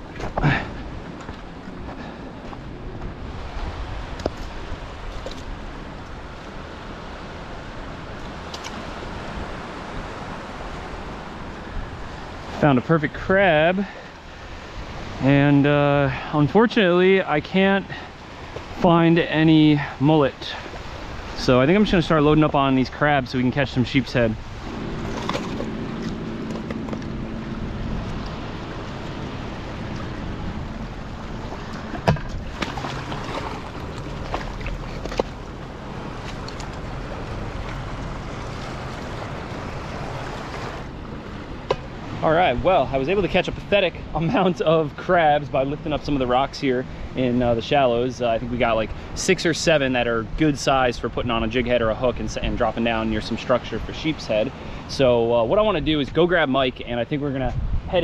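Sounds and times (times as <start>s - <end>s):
wind buffeting microphone: 0.0s - 12.6s, 17.9s - 47.6s, 57.2s - 58.0s
waves washing in surf: 0.0s - 50.6s
water washing around rocks: 30.9s - 40.9s.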